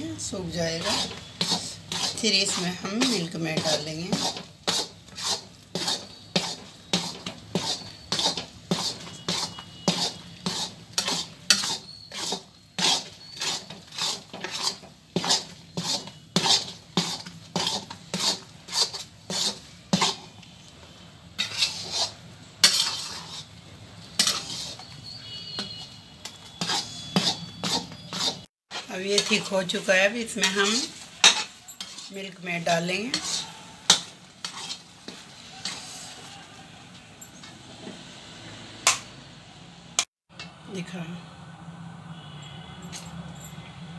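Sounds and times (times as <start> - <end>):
metal spatula scraping a pan: 0.0 - 20.7, 21.4 - 36.8.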